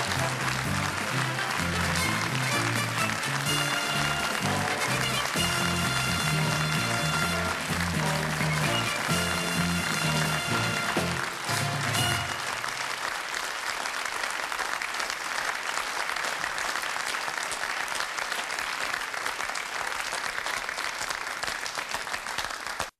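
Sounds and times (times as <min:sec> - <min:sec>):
closing theme music: 0:00.0 - 0:12.7
studio audience applause: 0:00.0 - 0:22.9.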